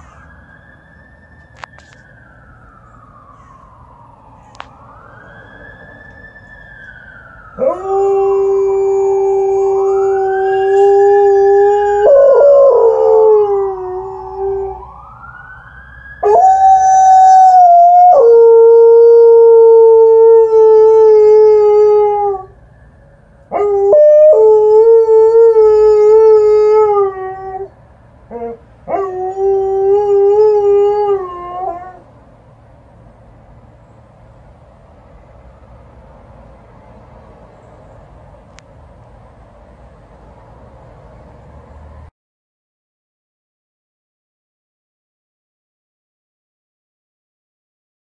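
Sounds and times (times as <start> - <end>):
faint ambulance siren wail: 0.0 - 42.1
dog howling: 7.6 - 14.8.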